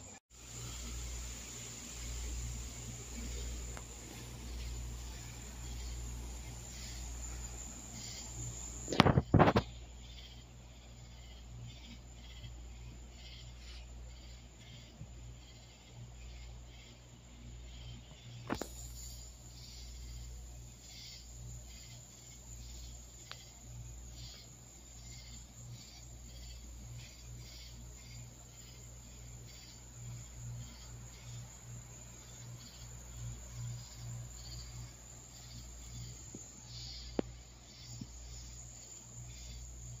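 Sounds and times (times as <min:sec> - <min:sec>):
crickets trilling: 0:00.0 - 0:40.0
insects pulsing calls: 0:00.0 - 0:40.0
low insect drone: 0:00.0 - 0:40.0
steady low hum: 0:00.0 - 0:40.0
sharp click: 0:08.9 - 0:09.7.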